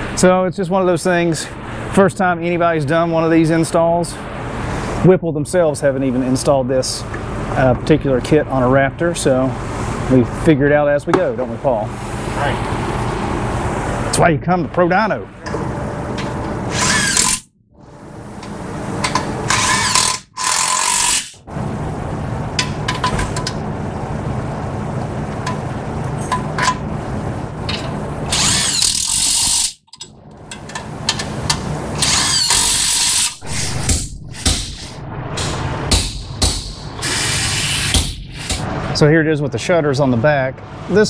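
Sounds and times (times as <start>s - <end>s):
handheld power tool running: 28.3s - 29.8s, 32.0s - 34.5s, 37.0s - 38.6s.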